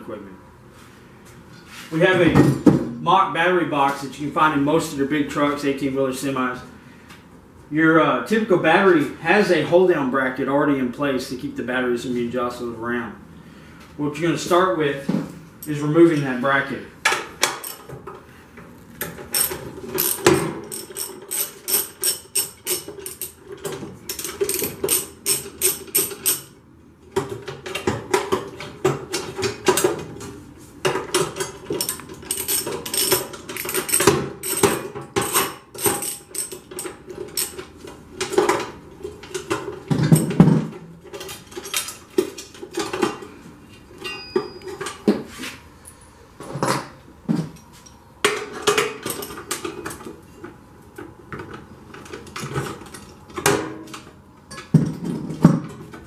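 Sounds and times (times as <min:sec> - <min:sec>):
ratchet wrench clicking: 0:19.3 - 0:23.4, 0:24.1 - 0:26.5, 0:31.8 - 0:37.6.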